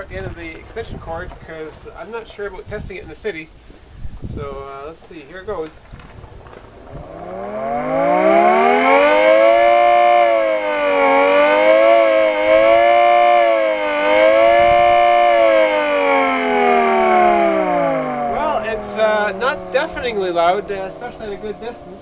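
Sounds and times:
two-tone air raid siren howling: 6.9s - 22.0s.

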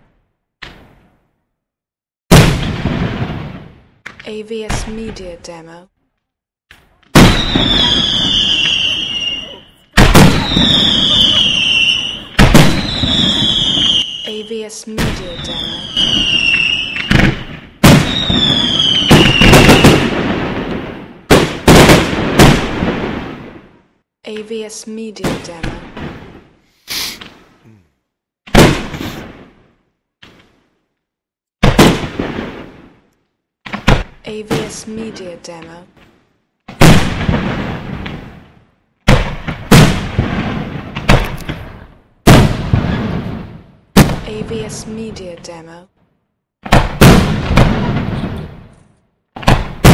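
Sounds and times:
fireworks bursting: 2.3s - 5.3s, 6.7s - 23.7s, 28.5s - 30.8s, 31.6s - 33.1s, 33.7s - 45.3s, 46.6s - 48.8s, 49.4s - 49.9s
falling high whistle: 7.4s - 9.7s.

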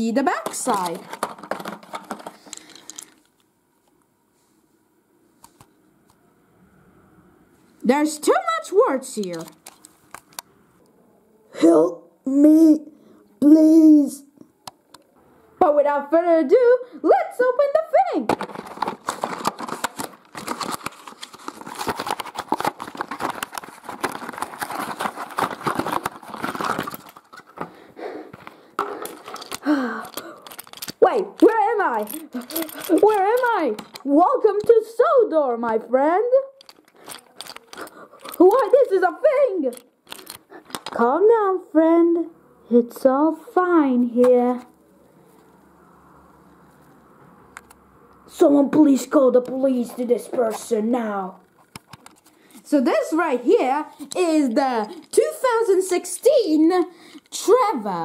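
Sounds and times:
plastic blister pack clicking and rattling: 0.4s - 3.2s, 18.4s - 31.0s, 31.9s - 34.1s, 36.6s - 38.8s.

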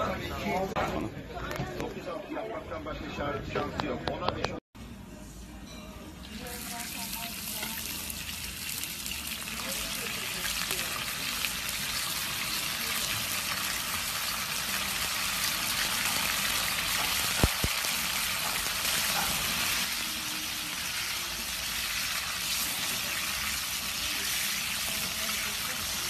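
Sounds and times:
meat sizzling in hot oil: 6.4s - 26.0s.

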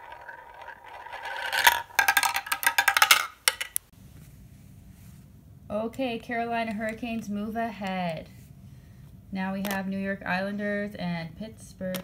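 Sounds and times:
marble rolling in plastic funnel: 0.0s - 3.8s
marble clattering through tubes: 0.0s - 3.9s.

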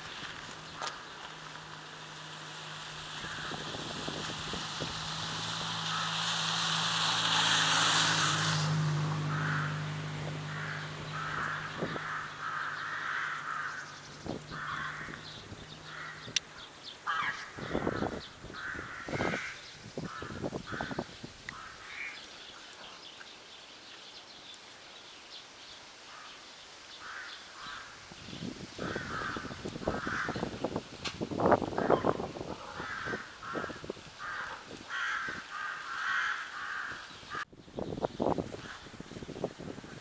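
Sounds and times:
low engine hum: 0.0s - 17.0s
crow cawing: 3.2s - 3.7s, 5.8s - 6.2s, 9.2s - 16.3s, 17.0s - 22.2s, 26.1s - 26.4s, 27.0s - 28.0s, 28.8s - 30.5s, 31.8s - 37.4s.

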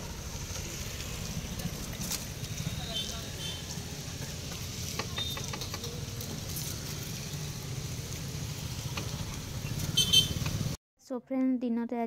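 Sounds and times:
low street rumble: 0.0s - 10.8s.

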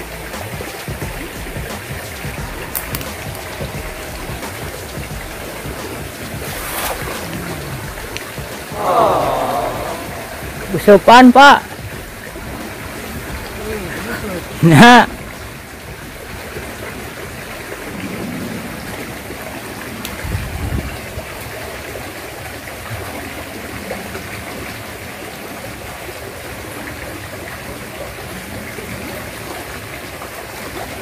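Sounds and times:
river water rushing: 0.0s - 20.4s.

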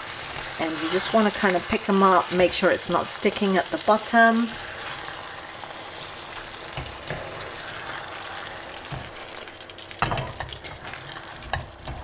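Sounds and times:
curry sizzling in a pan: 0.0s - 12.0s
spoon knocking and scraping pan: 6.3s - 9.2s, 9.9s - 12.0s.

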